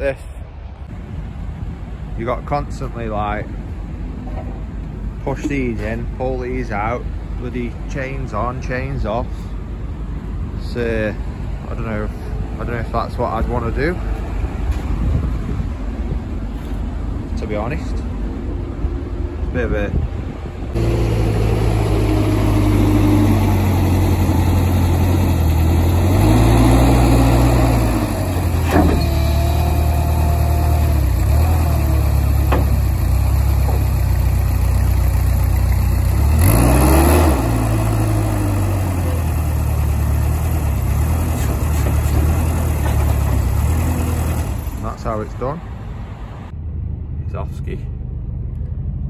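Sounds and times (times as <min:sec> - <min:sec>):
diesel engine revving: 0:20.6 - 0:49.0.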